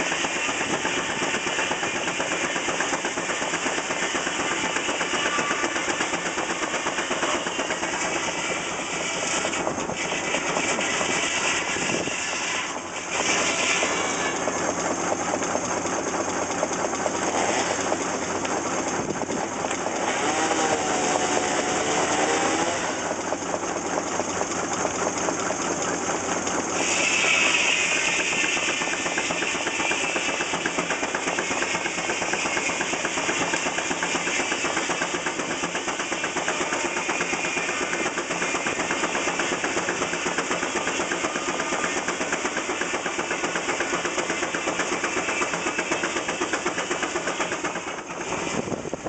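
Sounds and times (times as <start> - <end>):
engine running with even beat: 12.8 - 49.0.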